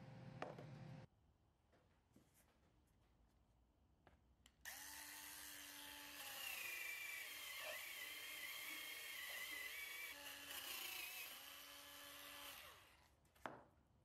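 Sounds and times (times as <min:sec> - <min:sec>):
rotary tool high whine: 0:04.7 - 0:13.0.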